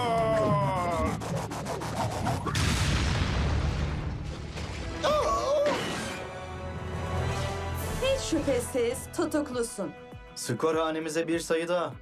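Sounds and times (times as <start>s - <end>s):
heavy crash with rumbling boom: 2.6s - 5.0s
background music: 3.0s - 12.0s.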